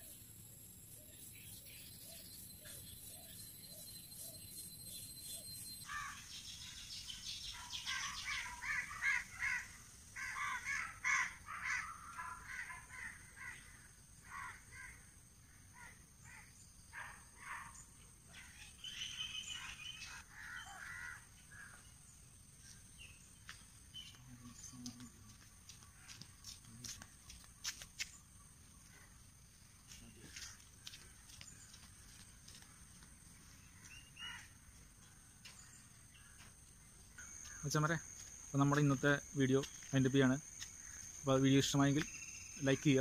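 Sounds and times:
crows cawing: 5.8 - 6.3, 7.6 - 15.1, 20.0 - 21.8, 33.7 - 34.8.

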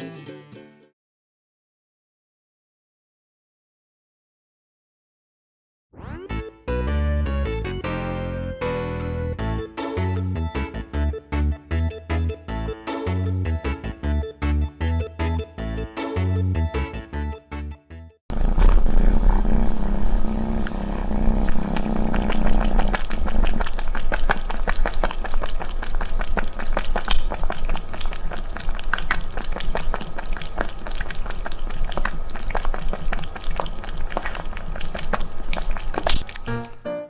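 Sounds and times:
low steady rumble: 18.3 - 27.2
cat lapping water: 18.3 - 36.8.

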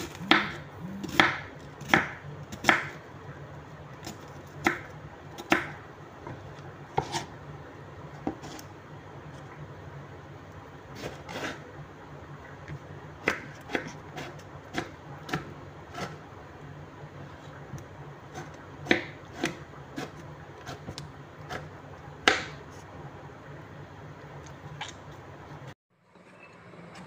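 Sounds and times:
steady low hum: 0.0 - 27.0.

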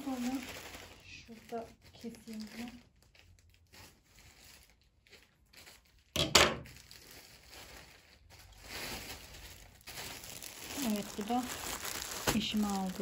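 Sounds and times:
plastic bag ripping: 0.0 - 13.0
plastic crinkling: 0.0 - 13.0.

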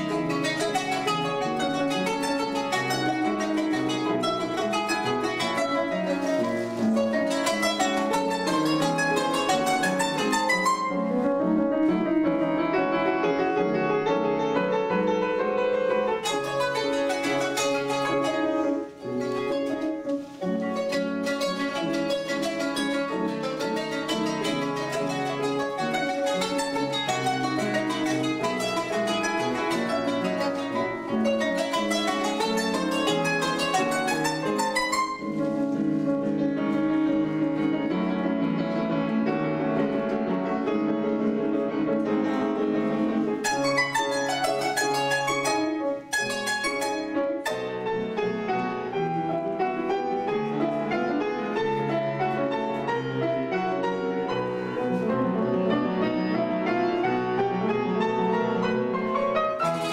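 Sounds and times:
upright piano: 0.0 - 59.9.

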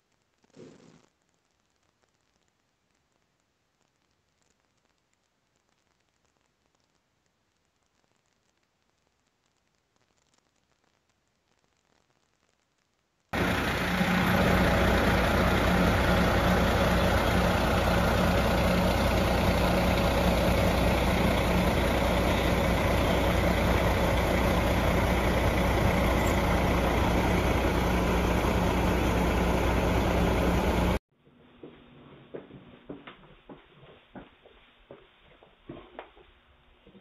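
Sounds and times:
fire engine idling: 13.4 - 31.0.

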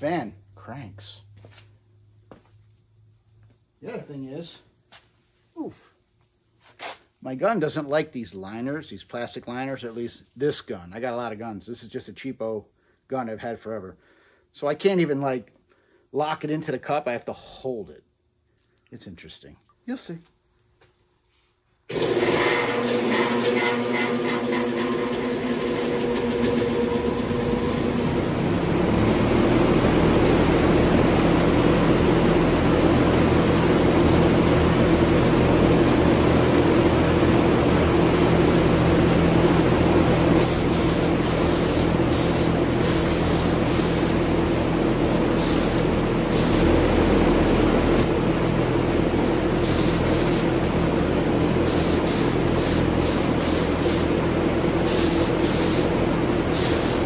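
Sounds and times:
exhaust fan droning: 25.2 - 57.0
paint spray gun hissing: 40.4 - 44.2, 45.3 - 46.8, 49.6 - 50.6, 51.6 - 54.2, 54.8 - 57.0.

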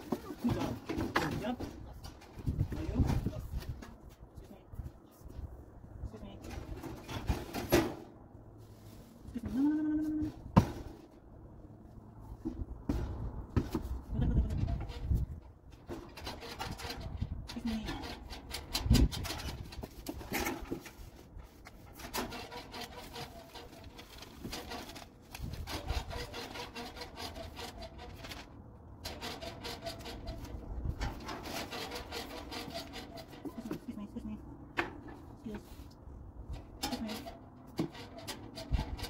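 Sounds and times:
parts scraping and clicking: 14.6 - 33.9, 34.8 - 39.0.

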